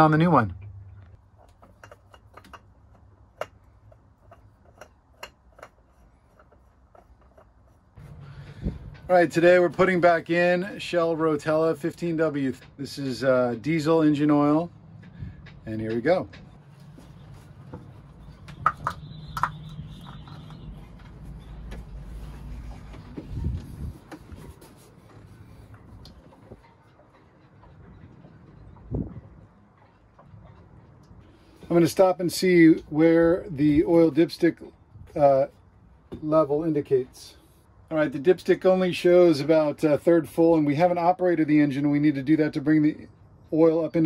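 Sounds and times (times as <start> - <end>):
low steady hum: 0.0 - 38.6
oil filter clicking: 1.0 - 7.6.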